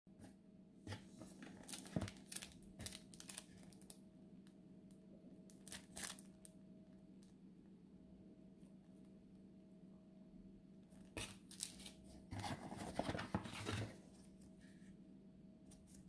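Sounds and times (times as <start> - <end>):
faint steady hum: 0.2 - 16.0
plastic sleeve crinkling: 1.4 - 3.9, 5.5 - 6.4.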